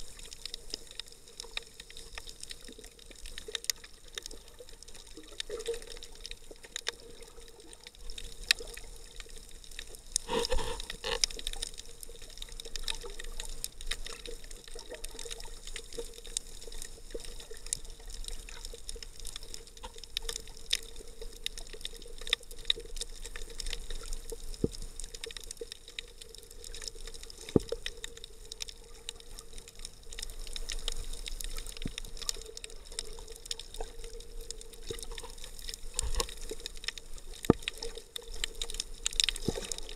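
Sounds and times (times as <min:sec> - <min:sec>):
faint steady hum: 0:00.0 - 0:39.9
sharp clicks and crackles: 0:00.0 - 0:39.9
muffled underwater noise: 0:10.1 - 0:11.4.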